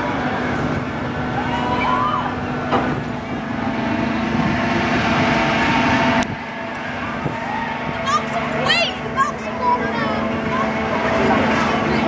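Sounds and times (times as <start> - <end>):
ride machinery hum: 0.0 - 12.0
rushing wash of noise: 0.0 - 12.0
children's voices: 8.0 - 12.0.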